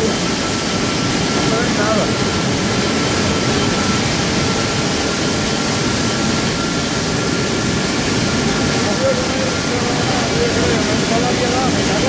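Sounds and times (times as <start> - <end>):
industrial roar: 0.0 - 12.0.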